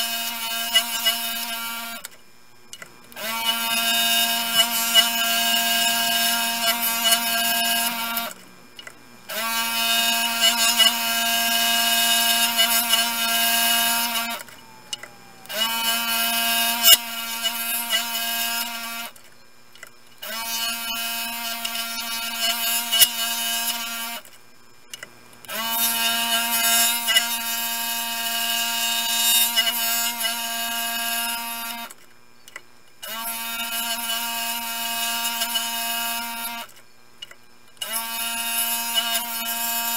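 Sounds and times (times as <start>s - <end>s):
scroll saw cutting: 0.0s - 2.2s, 2.8s - 32.0s, 33.0s - 39.9s.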